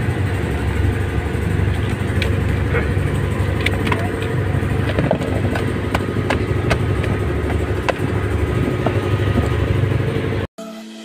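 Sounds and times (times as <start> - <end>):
boat engine running: 0.0 - 10.5.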